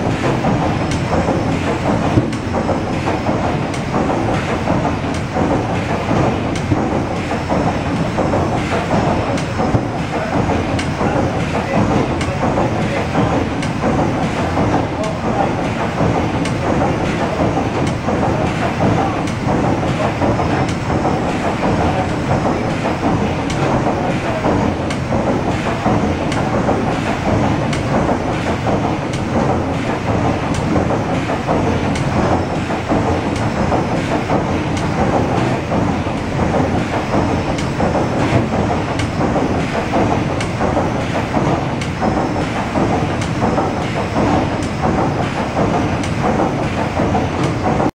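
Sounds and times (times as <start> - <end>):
steam engine running with rhythmic beat: 0.0 - 47.9.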